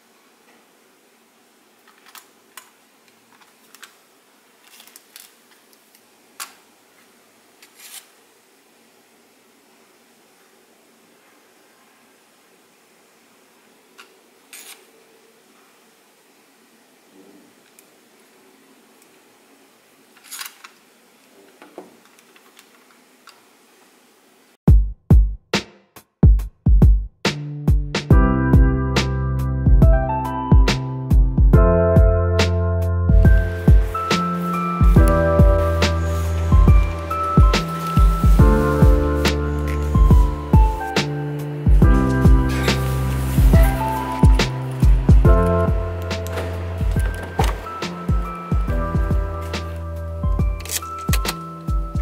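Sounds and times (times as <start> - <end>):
music with heavy drum hits: 24.7 - 28.8, 33.1 - 34.0, 36.5 - 39.1, 40.0 - 41.1, 41.7 - 42.7, 43.4 - 46.1, 46.8 - 49.4
phone handling rustle: 45.5 - 48.6, 50.5 - 51.8.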